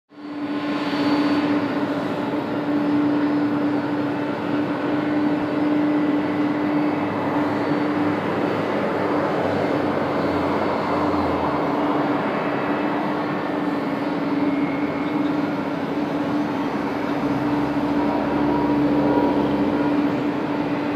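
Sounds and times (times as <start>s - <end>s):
jet engines humming: 0.1s - 20.9s
steady tone: 15.8s - 20.9s.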